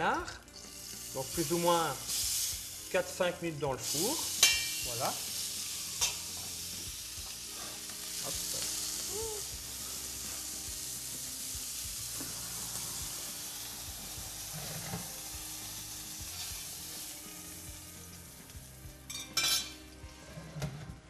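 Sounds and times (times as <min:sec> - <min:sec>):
meat sizzling in a pan: 0:00.0 - 0:20.0
metallic pan clatter: 0:04.4 - 0:04.8, 0:19.1 - 0:19.8.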